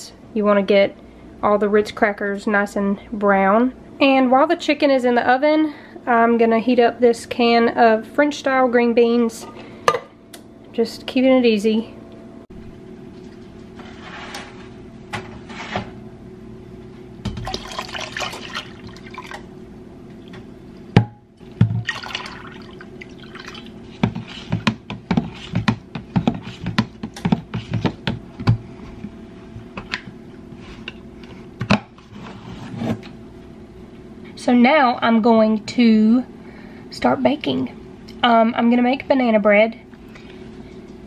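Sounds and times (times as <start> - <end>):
tea pouring into pitcher: 17.4 - 19.4, 21.8 - 23.8.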